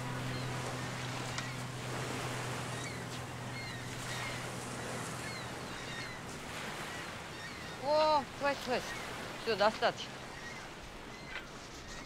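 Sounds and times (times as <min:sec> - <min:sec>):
low steady hum: 0:00.0 - 0:08.9.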